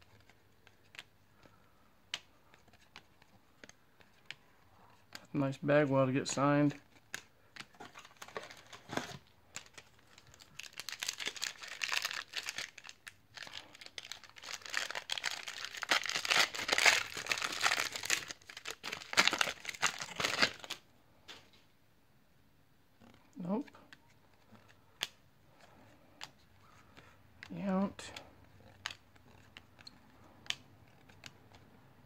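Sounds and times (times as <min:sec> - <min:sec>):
foil wrapper tearing and crinkling: 0:09.7 - 0:20.8.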